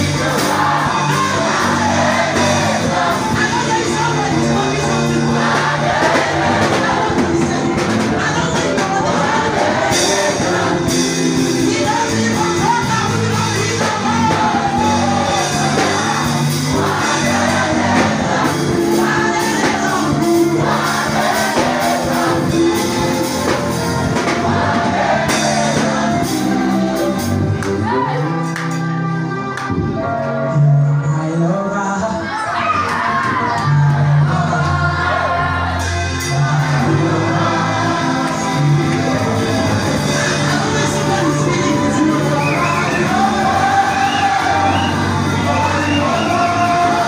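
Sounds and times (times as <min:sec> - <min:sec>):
backing singers: 0:00.0 - 0:47.0
drums: 0:00.0 - 0:47.0
electric bass guitar: 0:00.0 - 0:47.0
keyboard: 0:00.0 - 0:47.0
man singing into microphone: 0:06.8 - 0:16.5, 0:29.8 - 0:35.0, 0:36.3 - 0:47.0.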